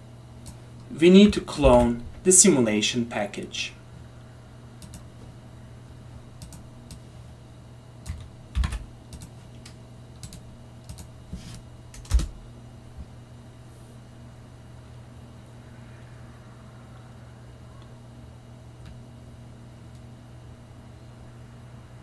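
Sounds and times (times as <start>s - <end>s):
faint low hum: 0.0s - 22.0s
computer keyboard and mouse clicks: 4.8s - 5.0s, 6.4s - 7.0s, 8.0s - 11.1s, 11.9s - 12.3s.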